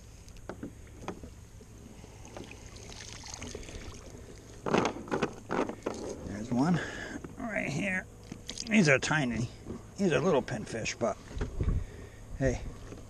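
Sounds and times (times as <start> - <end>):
small splashes: 1.9 - 4.7, 8.2 - 8.8
water dripping: 2.3 - 4.5.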